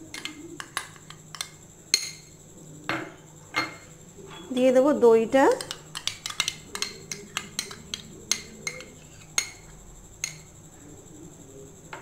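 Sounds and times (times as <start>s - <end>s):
glass bowl clinking: 0.1s - 2.4s, 3.0s - 4.6s, 5.5s - 10.5s.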